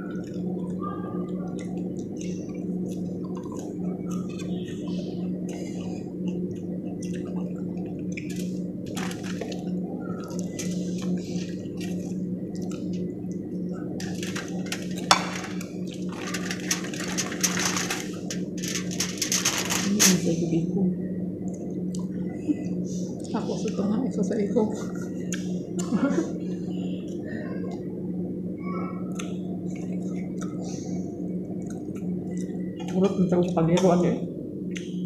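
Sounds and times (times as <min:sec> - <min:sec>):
steady low hum: 0:00.0 - 0:35.0
wet chewing and lip smacks: 0:00.1 - 0:08.6, 0:09.4 - 0:13.5, 0:29.1 - 0:30.7, 0:31.4 - 0:33.6, 0:34.7 - 0:35.0.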